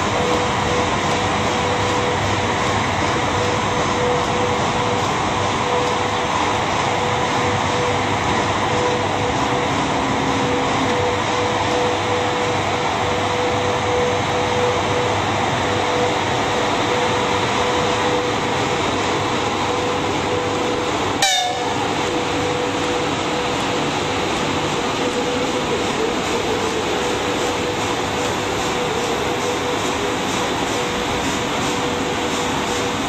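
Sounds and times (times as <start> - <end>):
locomotive hum: 0.0 - 33.0
locomotive rail rumble: 0.0 - 33.0.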